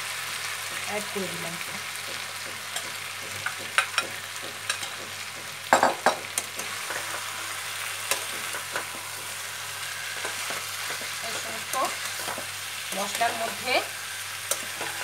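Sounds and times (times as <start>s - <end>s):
meat sizzling in oil: 0.0s - 15.0s
spatula knocking against pan: 1.6s - 6.4s.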